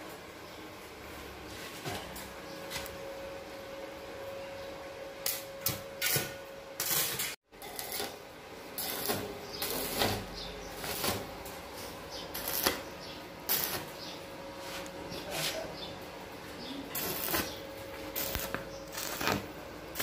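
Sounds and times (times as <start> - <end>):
welding arc crackling: 5.2 - 14.1, 16.8 - 20.0.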